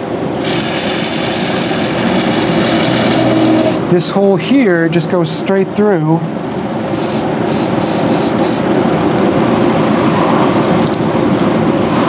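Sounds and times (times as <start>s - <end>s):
low rushing noise with hum: 0.0s - 12.0s
aerosol spray spritzes: 0.4s - 3.8s, 7.0s - 8.6s.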